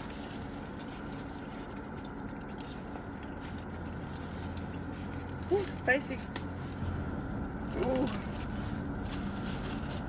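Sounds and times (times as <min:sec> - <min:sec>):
faint chewing: 0:00.0 - 0:05.4
car cabin hum and hiss: 0:00.0 - 0:10.0.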